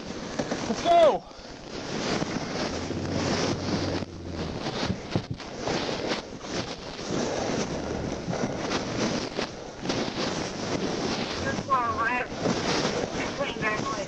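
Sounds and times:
steady rush of noise: 0.0s - 14.0s
low engine hum: 2.4s - 5.6s, 10.6s - 14.0s.

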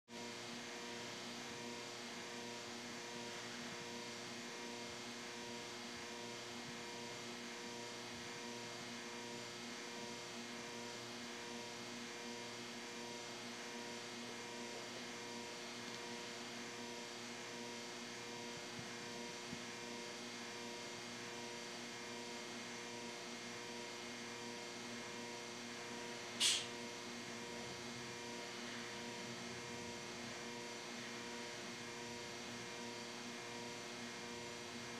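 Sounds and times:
electrical hum: 0.2s - 34.9s
sharp click: 26.4s - 26.7s.

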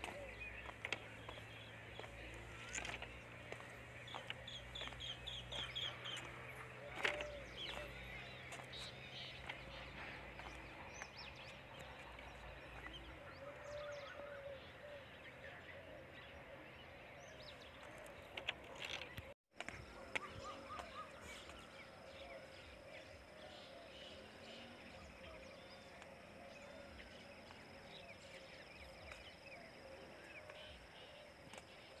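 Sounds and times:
bird chirps: 0.0s - 16.4s.

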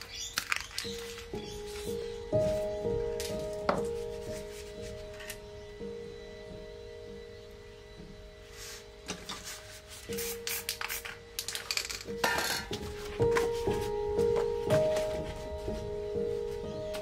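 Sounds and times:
paper rustling and scraping: 0.0s - 5.3s, 8.5s - 11.7s, 12.7s - 17.0s
background music with sustained tones: 0.0s - 17.0s.

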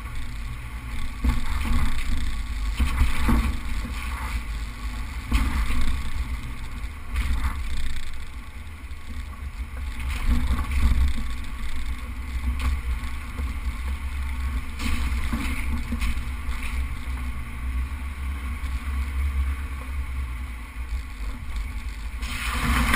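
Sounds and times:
vehicle engine low rumble: 0.0s - 22.9s.

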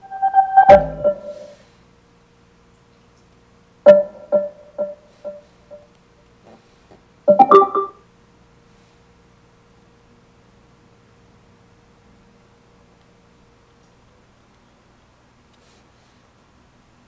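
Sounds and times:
electronic prompt chimes: 0.0s - 1.6s, 3.9s - 5.8s, 7.3s - 8.0s
faint steady hum: 0.0s - 17.0s.

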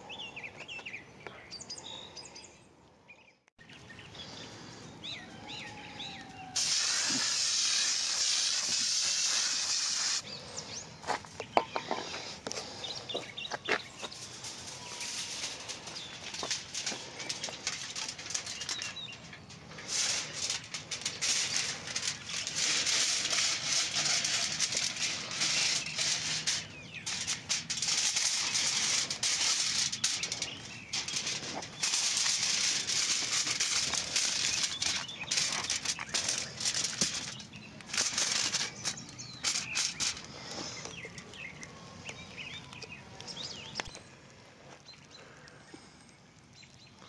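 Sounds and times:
aluminium foil crinkling: 6.2s - 10.2s, 12.1s - 44.1s.

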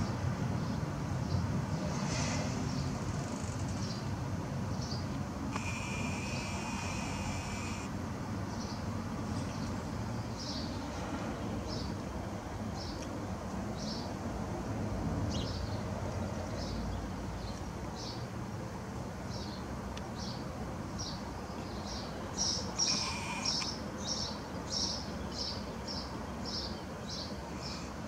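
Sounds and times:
sparrow chirping: 4.8s - 7.9s, 21.0s - 27.9s.

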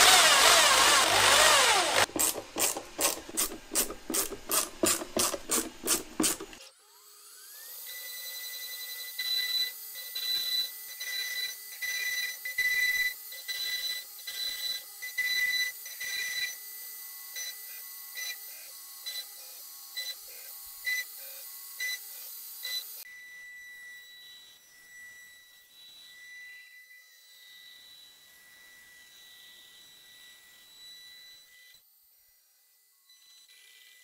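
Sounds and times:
router spindle high whine: 0.0s - 2.1s, 6.6s - 34.0s
bursts of cutting noise: 0.0s - 3.8s.

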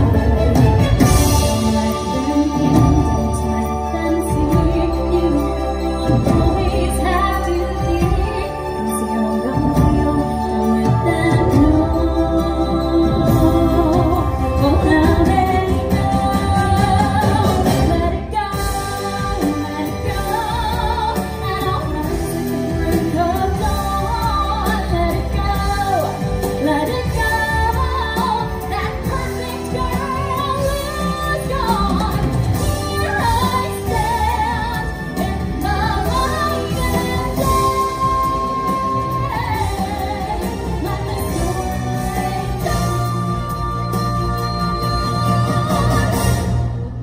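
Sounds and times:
backing music: 0.0s - 47.0s
woman singing with vibrato: 0.0s - 47.0s.

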